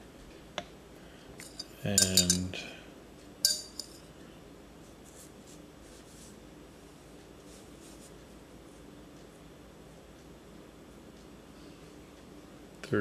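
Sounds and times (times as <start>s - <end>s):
metal clinking against glass: 1.4s - 2.5s, 3.4s - 4.0s.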